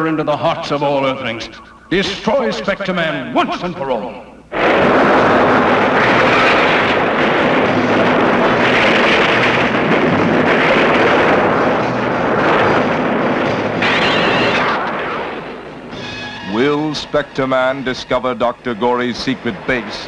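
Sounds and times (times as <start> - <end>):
loud sustained rumbling: 4.4 - 20.0.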